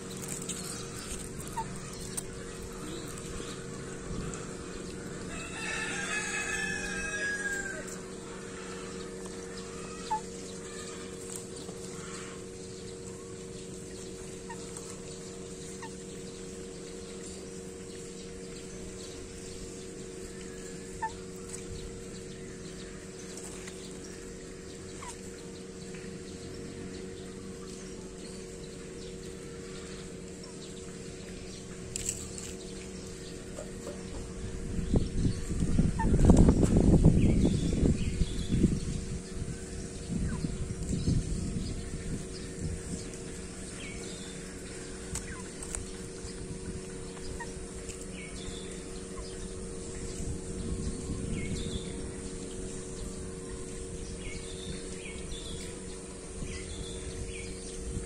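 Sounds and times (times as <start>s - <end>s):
steady low hum: 0.0s - 58.0s
rooster crowing: 5.3s - 8.0s.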